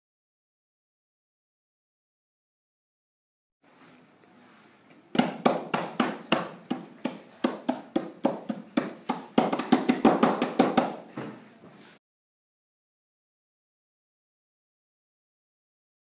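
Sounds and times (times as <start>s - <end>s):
hands slapping a whiteboard: 5.1s - 11.4s.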